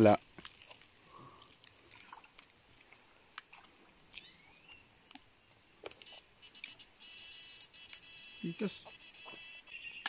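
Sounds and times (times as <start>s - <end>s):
water splashing from wading: 0.3s - 4.6s
bird chirping: 0.5s - 10.0s.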